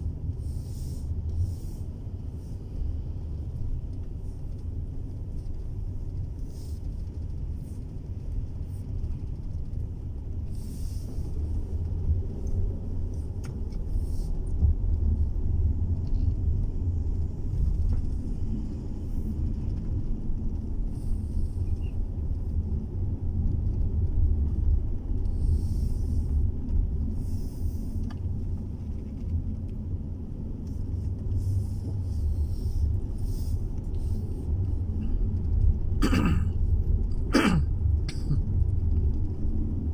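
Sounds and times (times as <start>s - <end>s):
car engine and tyre rumble: 0.0s - 39.9s
road hiss: 0.3s - 3.4s, 6.3s - 7.9s, 10.4s - 11.7s, 13.2s - 14.6s, 20.9s - 22.0s, 25.3s - 26.4s, 27.0s - 28.6s, 31.0s - 35.4s.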